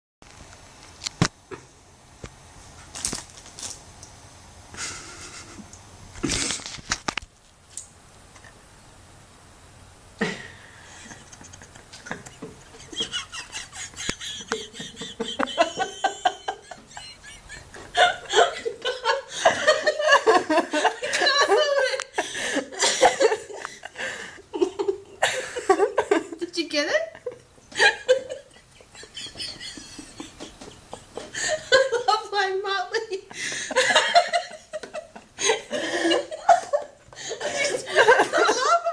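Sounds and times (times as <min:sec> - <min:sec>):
rustling: 0:02.6 - 0:04.1
woman laughing hard: 0:10.2 - 0:26.4, 0:27.2 - 0:32.3, 0:33.0 - 0:38.9.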